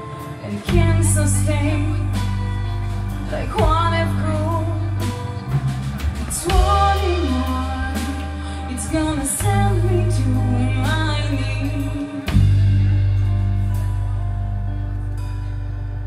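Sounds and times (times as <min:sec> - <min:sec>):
woman singing: 0:00.0 - 0:05.5, 0:06.2 - 0:13.0
bass guitar long low notes: 0:00.0 - 0:16.0
live band playing slow song: 0:00.0 - 0:16.0.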